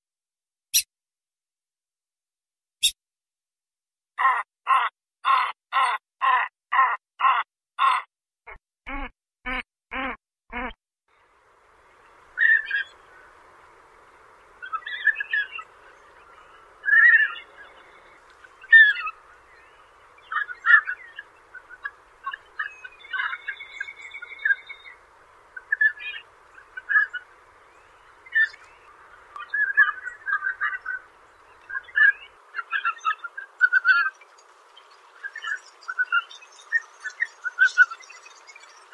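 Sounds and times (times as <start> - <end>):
faint steady hiss: 11.1 - 38.9.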